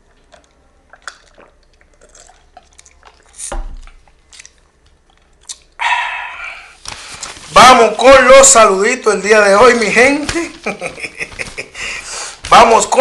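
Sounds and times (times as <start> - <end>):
wet mouth clicks and swallows: 0.3 - 5.8
breathy exhale: 11.8 - 12.4.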